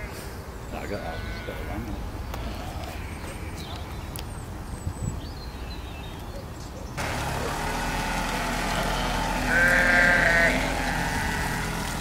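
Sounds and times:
sheep bleating: 0:00.9 - 0:03.6, 0:08.6 - 0:12.0
pickup truck engine running: 0:07.0 - 0:12.0.

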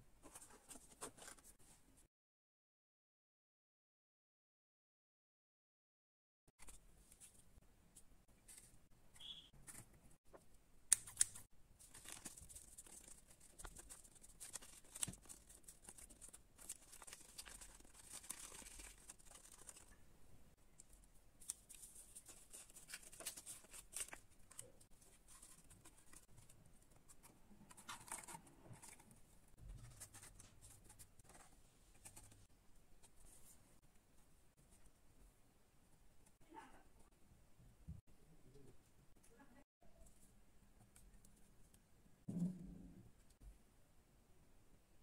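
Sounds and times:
cardboard and paper rustling: 0:11.8 - 0:20.0, 0:21.4 - 0:33.6.

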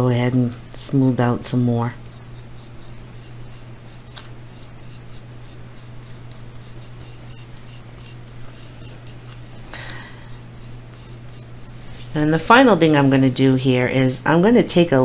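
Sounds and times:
steady low hum: 0:00.0 - 0:15.0
fingers rubbing and scraping clay: 0:02.0 - 0:09.4, 0:10.2 - 0:12.3.

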